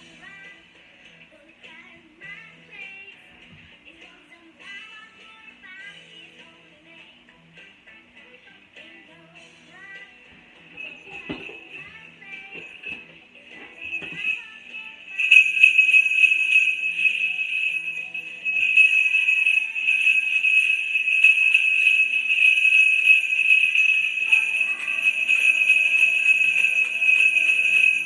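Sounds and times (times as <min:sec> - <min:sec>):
sleigh bells jingling: 0:10.6 - 0:28.0.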